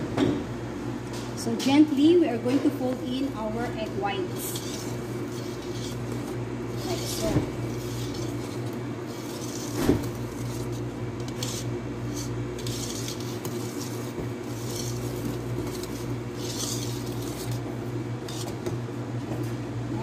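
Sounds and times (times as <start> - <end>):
steady low hum: 0.0 - 20.0
whisk swishing through batter: 4.1 - 18.8
whisk knocking against metal bowl: 4.4 - 17.6.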